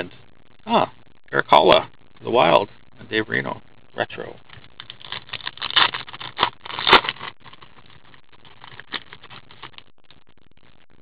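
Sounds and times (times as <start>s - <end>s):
cards rustling: 4.5s - 9.9s
wrapper tearing and crinkling: 4.5s - 9.9s.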